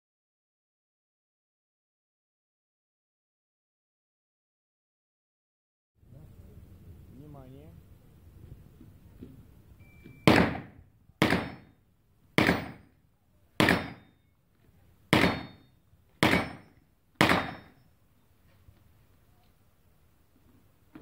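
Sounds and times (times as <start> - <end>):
pistol gunshots echoing: 10.2 - 11.8, 12.4 - 12.9, 13.6 - 14.2, 15.1 - 17.8.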